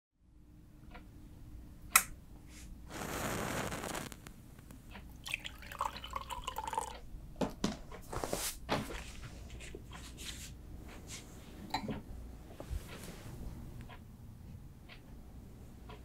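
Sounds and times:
sharp click: 1.9 - 2.2
match struck and flaring: 2.9 - 4.7.

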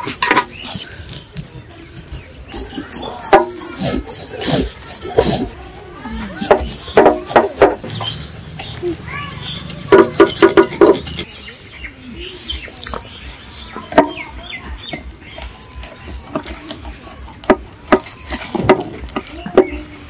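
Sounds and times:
knife scraping fish: 0.0 - 5.6, 6.2 - 11.3
birds chirping: 0.0 - 20.0
faint voices: 0.0 - 20.0.

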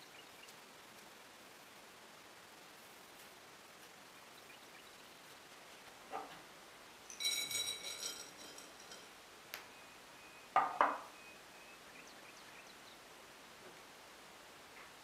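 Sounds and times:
nuts clattering onto ceramic plate: 7.1 - 9.2.

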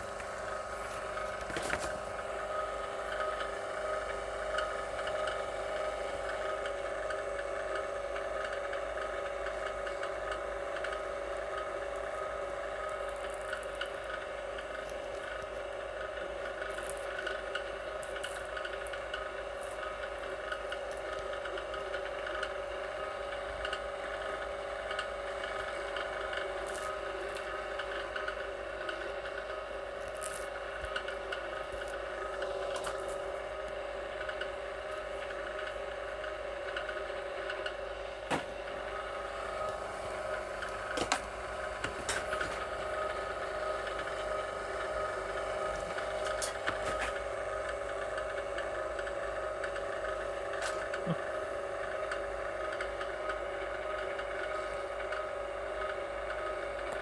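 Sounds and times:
wire-stripping machine whine: 0.0 - 57.0.

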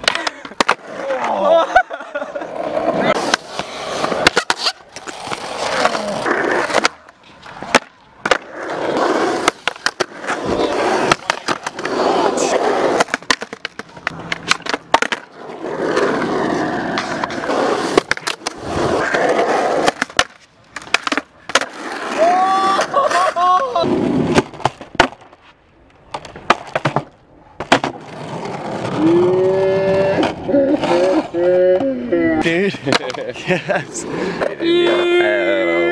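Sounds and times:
skateboard clacks: 0.0 - 1.4, 2.6 - 23.2, 26.1 - 31.9, 32.6 - 33.4
skateboard wheels rolling on concrete: 0.0 - 35.9.

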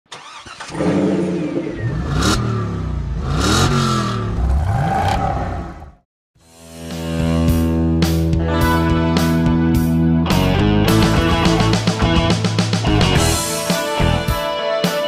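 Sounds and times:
car engine revving: 0.2 - 6.0.

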